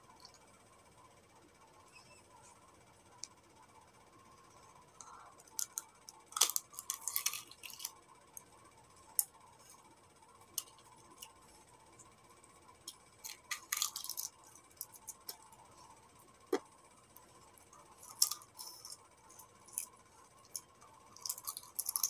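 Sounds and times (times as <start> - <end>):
egg shell cracking: 5.4 - 8.5, 12.9 - 15.5, 17.9 - 22.0.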